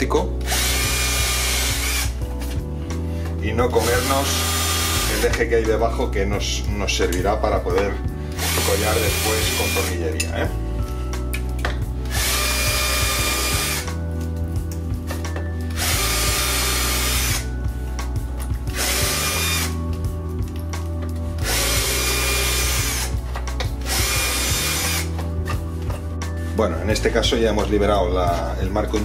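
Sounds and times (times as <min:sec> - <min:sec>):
cordless drill drilling: 0:00.4 - 0:02.2, 0:03.8 - 0:05.4, 0:08.3 - 0:10.0, 0:12.1 - 0:14.0, 0:15.6 - 0:17.5, 0:18.7 - 0:19.8, 0:21.4 - 0:23.2, 0:23.8 - 0:25.6.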